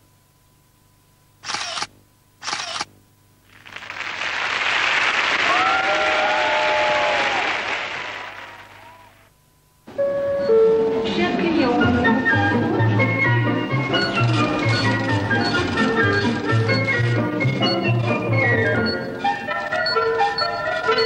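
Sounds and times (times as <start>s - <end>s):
short noise bursts: 1.4s - 5.6s
applause: 3.5s - 9.2s.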